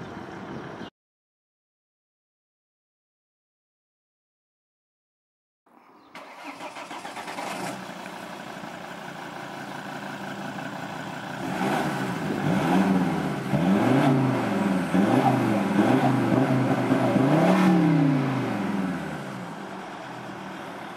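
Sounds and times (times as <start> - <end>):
diesel car engine idling and revving: 0.0 - 0.9, 6.2 - 20.9.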